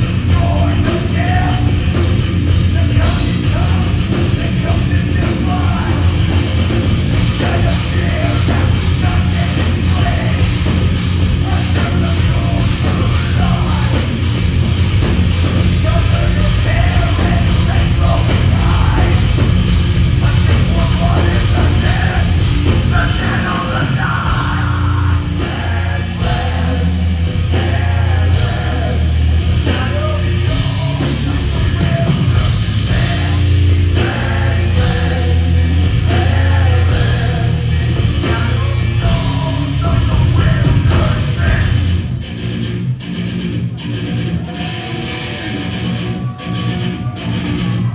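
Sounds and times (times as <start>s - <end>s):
fast drum strikes: 0.0s - 42.0s
metal band playing live: 0.0s - 47.9s
vocalist singing into microphone: 15.8s - 19.4s, 20.2s - 42.0s.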